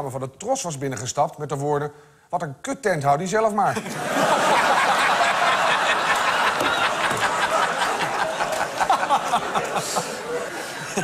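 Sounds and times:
studio audience laughing: 3.8s - 11.0s.

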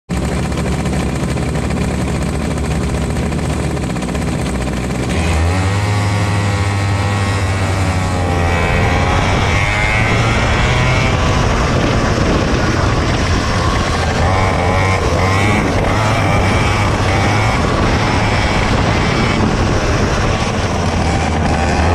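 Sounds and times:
kart engine revving: 0.1s - 21.9s.

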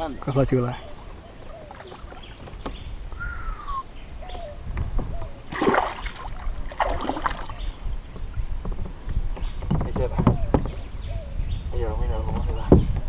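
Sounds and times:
fish splashing in water: 5.5s - 7.7s.

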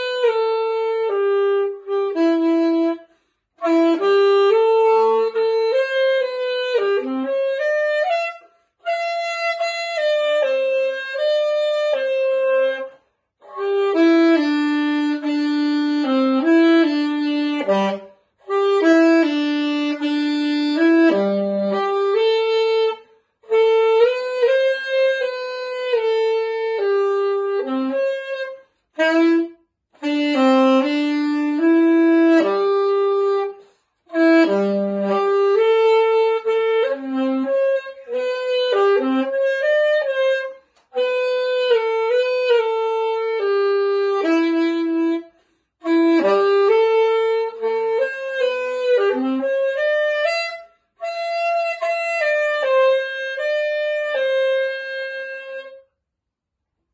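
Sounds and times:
alto saxophone melody: 0.0s - 56.2s.

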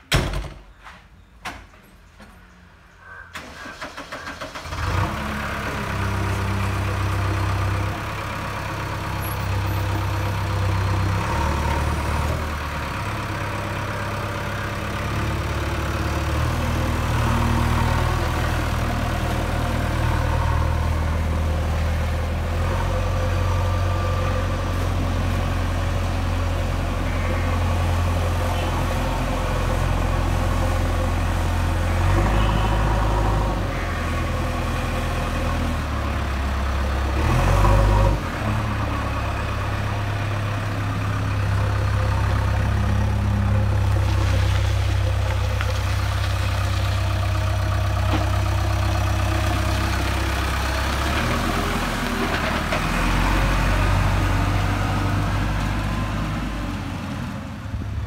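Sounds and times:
starter cranking diesel engine: 3.3s - 7.9s
diesel engine running: 3.4s - 58.0s.

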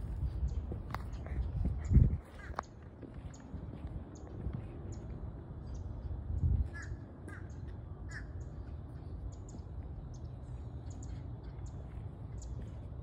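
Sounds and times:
low microphone rumble: 0.0s - 6.9s
birds calling: 0.0s - 13.0s.

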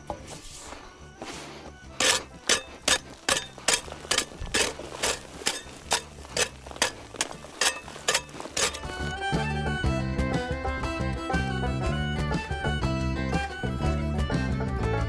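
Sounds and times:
hoe chopping and scraping soil: 0.0s - 10.3s.

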